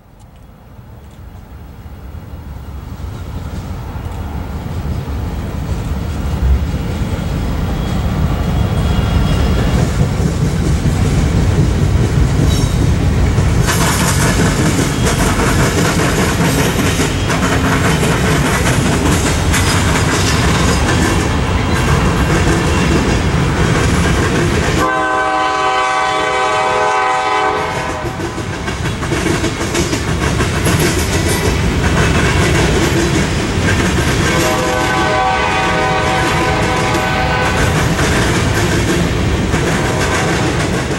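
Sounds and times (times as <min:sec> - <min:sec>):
freight train rumbling on rails: 0:00.0 - 0:40.9
locomotive chime horn: 0:07.8 - 0:09.8, 0:24.8 - 0:28.1, 0:34.3 - 0:37.7.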